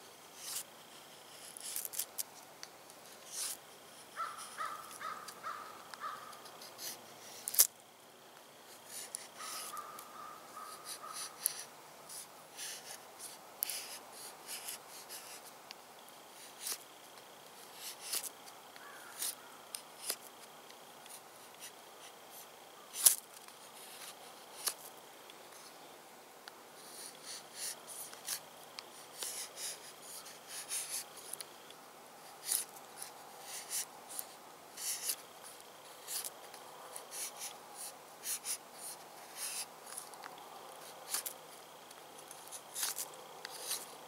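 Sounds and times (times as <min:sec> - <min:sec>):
bird calling: 0:04.2 - 0:06.5, 0:09.4 - 0:11.5, 0:18.8 - 0:19.6.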